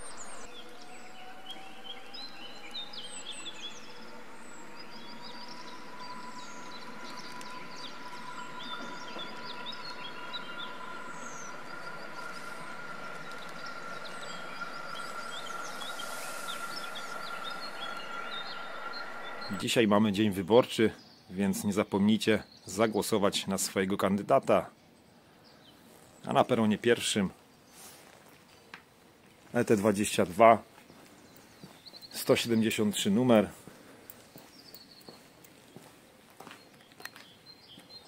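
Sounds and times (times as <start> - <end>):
electric train drive whine: 0.0 - 19.8
steady high tone: 0.0 - 20.2
birds chirping: 0.0 - 38.0.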